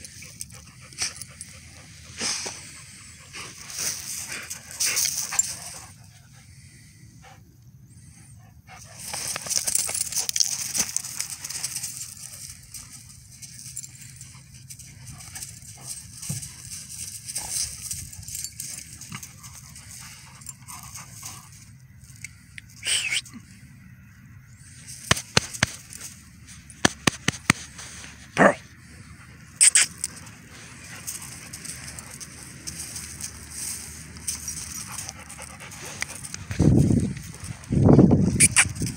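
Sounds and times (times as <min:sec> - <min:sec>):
dogs scuffling on loose ground: 0:00.0 - 0:06.0, 0:08.8 - 0:22.2, 0:24.9 - 0:28.4, 0:29.8 - 0:38.9
dog noises: 0:00.0 - 0:06.5, 0:26.8 - 0:38.9
collar tags jingling: 0:00.0 - 0:07.4, 0:08.0 - 0:23.6, 0:24.5 - 0:38.9
scuffle hiss: 0:01.8 - 0:05.9.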